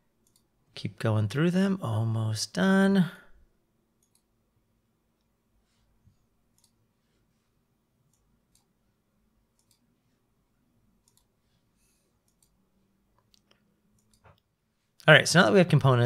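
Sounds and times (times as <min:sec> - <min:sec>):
computer mouse clicks: 0:00.2 - 0:00.5, 0:04.0 - 0:04.3, 0:06.5 - 0:06.8, 0:08.1 - 0:08.7, 0:09.5 - 0:09.9, 0:11.0 - 0:11.3, 0:12.2 - 0:12.6, 0:13.2 - 0:14.5.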